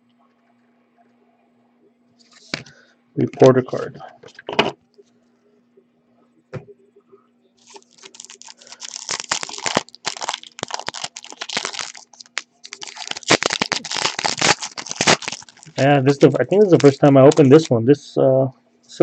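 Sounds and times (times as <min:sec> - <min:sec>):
foil wrapper crinkling: 0:07.6 - 0:17.7.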